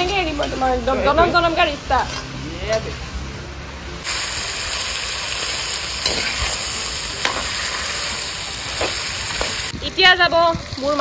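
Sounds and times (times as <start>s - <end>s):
meat sizzling in hot oil: 4.0s - 10.0s
spatula scraping a pan: 6.0s - 9.7s.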